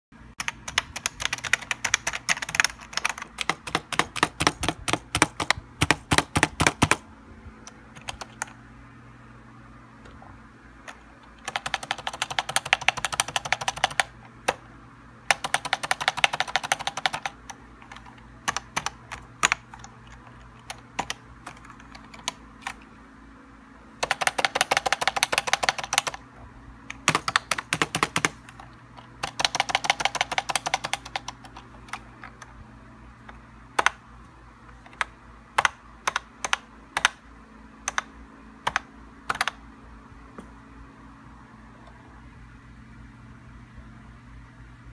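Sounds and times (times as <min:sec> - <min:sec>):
keyboard key clicks: 0:00.4 - 0:07.0.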